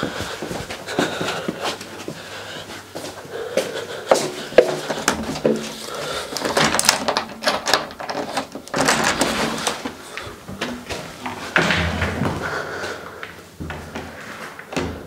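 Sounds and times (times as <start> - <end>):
door lock clicking and rattling: 6.4 - 9.8.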